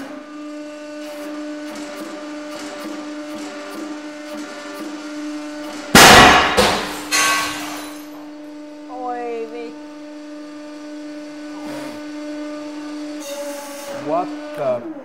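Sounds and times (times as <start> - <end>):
hydraulic pump humming: 0.0 - 15.0
metal shearing bang: 5.6 - 8.3
window glass breaking: 5.9 - 8.1.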